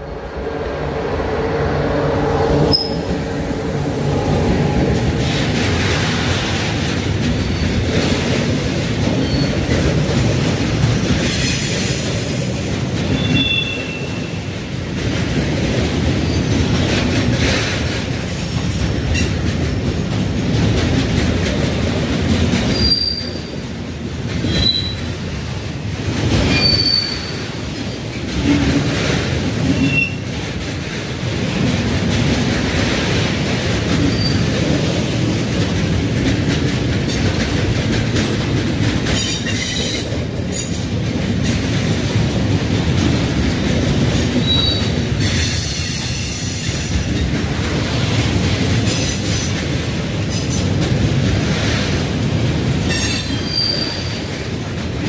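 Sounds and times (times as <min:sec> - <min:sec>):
freight train wagons rumbling: 0:00.0 - 0:55.0
high-pitched wheel squeals: 0:02.7 - 0:03.1.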